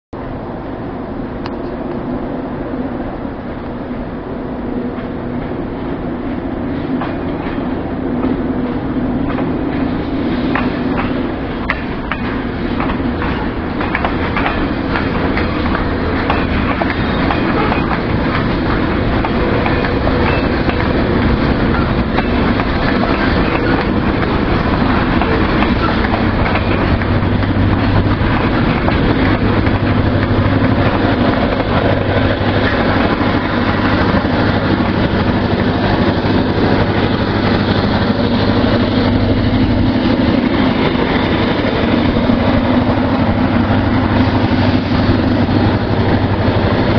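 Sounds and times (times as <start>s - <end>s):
diesel locomotive engine drone: 0.1s - 46.9s
train wheels on rail: 0.2s - 46.9s.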